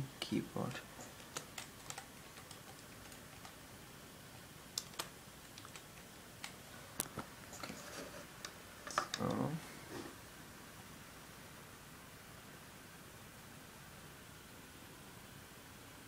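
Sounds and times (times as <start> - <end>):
computer keyboard key clicks: 1.3 - 3.6, 4.8 - 6.6.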